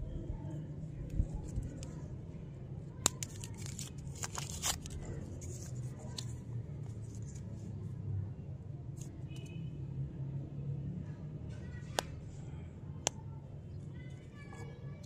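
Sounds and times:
paper wrapper crinkling and tearing: 3.0s - 6.3s
paper rustling: 3.0s - 7.5s.

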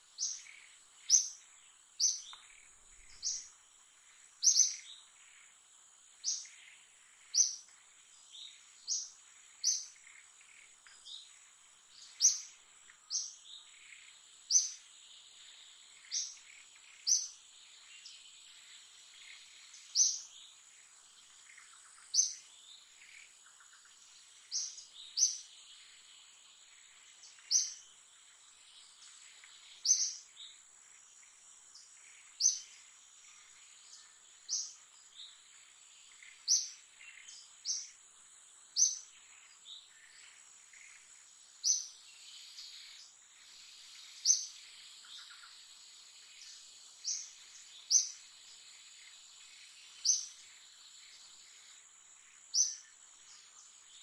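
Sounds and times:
bird high chirp: 4.4s - 5.0s, 27.3s - 27.8s, 29.4s - 30.6s, 36.1s - 38.0s, 52.5s - 52.9s.

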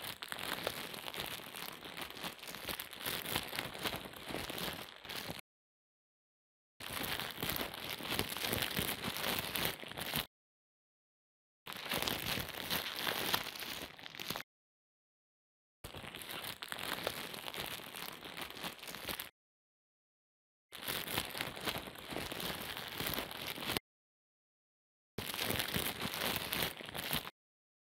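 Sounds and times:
dense crackling and crunching: 0.0s - 5.4s, 6.8s - 10.3s, 11.7s - 14.5s, 15.8s - 19.4s, 20.7s - 23.8s, 25.2s - 27.4s.

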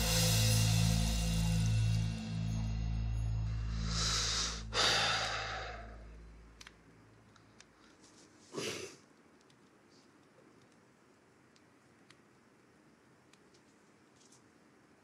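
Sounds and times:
soft background music: 0.0s - 6.6s
man sighing heavily: 3.7s - 6.1s.

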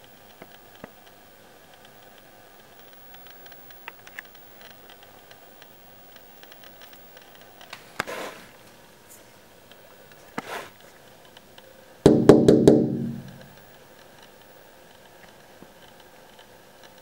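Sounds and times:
low hiss: 0.0s - 17.0s
short rustle: 7.8s - 9.4s, 10.1s - 11.0s.

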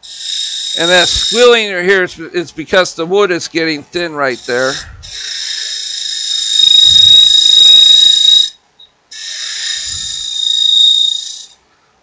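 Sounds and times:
wood lathe gouge squealing: 0.0s - 1.6s, 6.4s - 8.5s.

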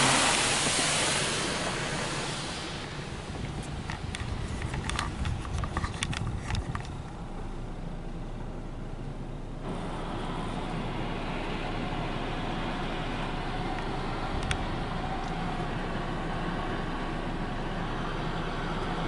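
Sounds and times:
car wash rushing noise: 0.0s - 8.2s, 9.6s - 19.0s
sharp ticks on car: 3.4s - 7.2s.

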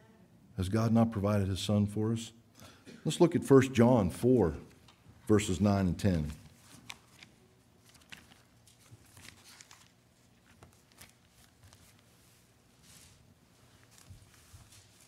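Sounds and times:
pages being turned: 6.0s - 15.0s.

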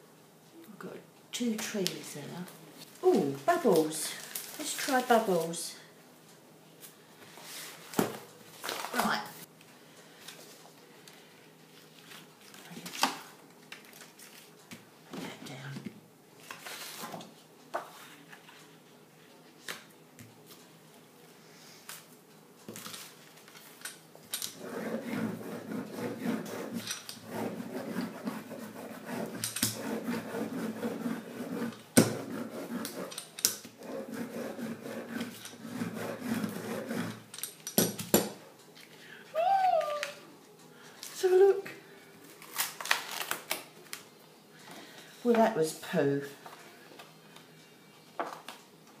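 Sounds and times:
rubber brayer rolling over paper: 24.6s - 37.3s.

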